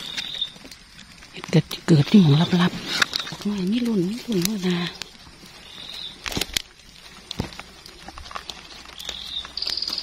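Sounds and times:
snaps and rustles in leaf litter: 0:00.0 - 0:10.0.

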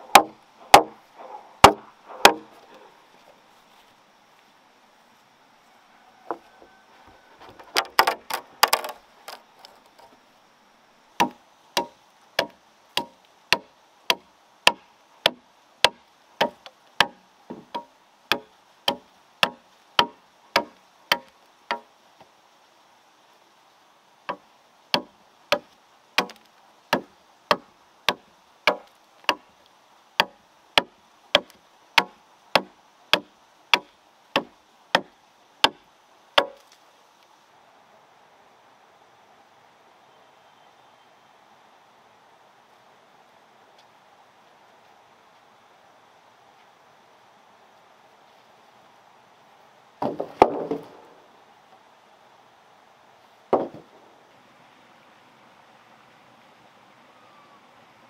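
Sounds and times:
machete chopping wooden pole: 0:00.1 - 0:01.0, 0:01.6 - 0:02.5, 0:11.2 - 0:21.9, 0:24.3 - 0:29.5, 0:30.2 - 0:35.8, 0:36.4 - 0:36.6, 0:50.0 - 0:51.0, 0:53.5 - 0:53.9.

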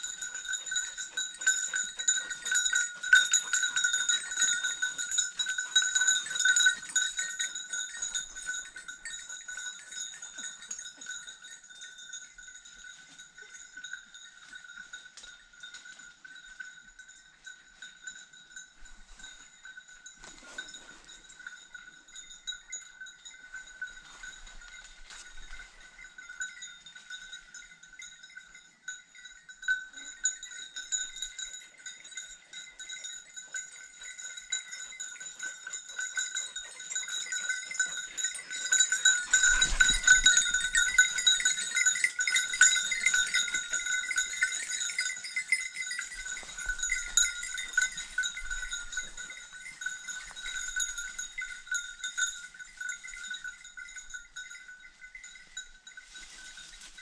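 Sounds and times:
dog bell jingling: 0:00.0 - 0:57.0
rustling in undergrowth: 0:23.4 - 0:26.2, 0:38.4 - 0:45.3, 0:54.9 - 0:57.0.

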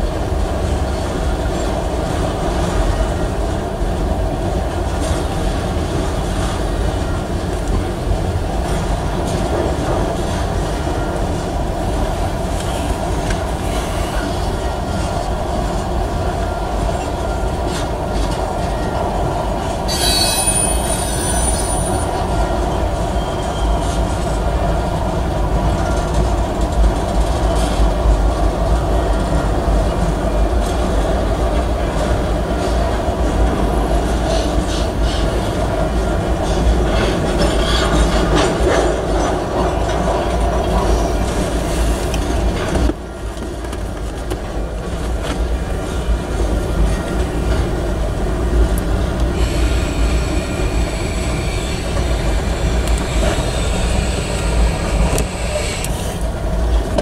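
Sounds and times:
train wheels rumbling on rails: 0:00.0 - 0:57.0
high wheel squeal: 0:19.9 - 0:24.0.

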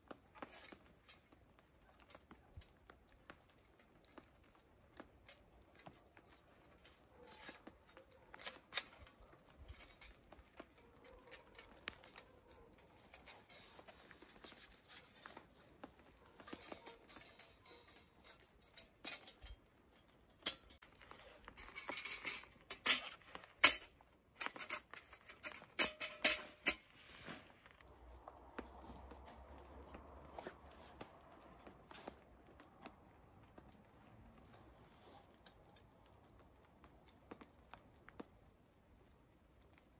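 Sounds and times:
thin metal panels clinking: 0:16.3 - 0:20.8, 0:21.5 - 0:26.9
soft rustling: 0:26.8 - 0:39.9.

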